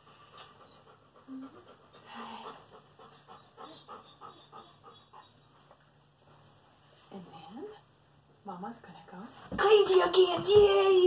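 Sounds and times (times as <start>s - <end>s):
dog panting: 0.0s - 5.8s.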